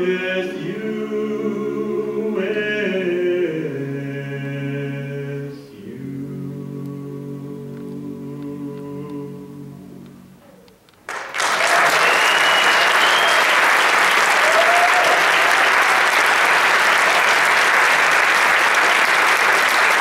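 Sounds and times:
audience applauding: 11.1 - 20.0
whistle: 11.9 - 13.6.

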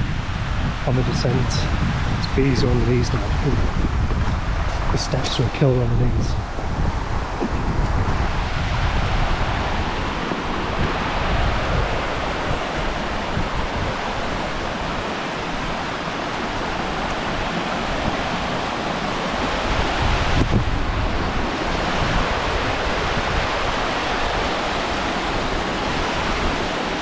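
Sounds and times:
stream rushing over rocks: 0.0 - 27.0
wind buffeting microphone: 0.0 - 27.0.

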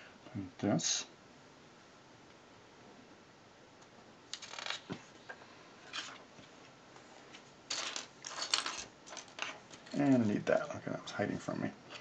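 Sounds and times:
plastic pieces clicking and rattling: 4.3 - 4.8, 7.7 - 10.0.

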